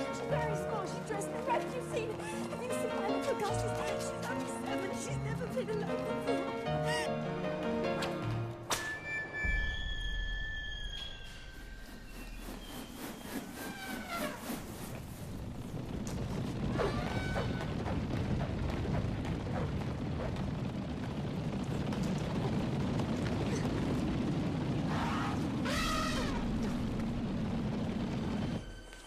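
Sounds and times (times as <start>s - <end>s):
high gliding squeals: 8.9s - 14.7s
deep steady rumble: 14.6s - 28.9s.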